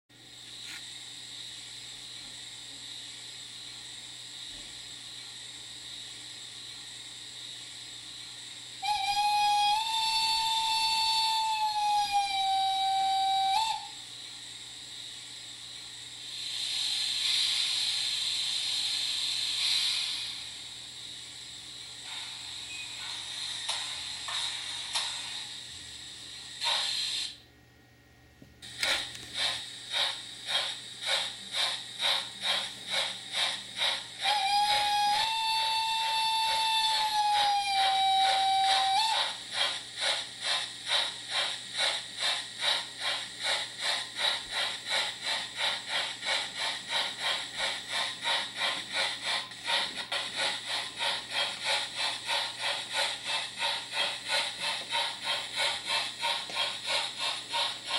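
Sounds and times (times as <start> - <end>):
steam hiss: 0.2 - 27.4, 28.6 - 57.9
locomotive exhaust chuffs: 1.2 - 27.3, 28.6 - 57.9
steam whistle: 8.8 - 14.1, 33.8 - 39.8.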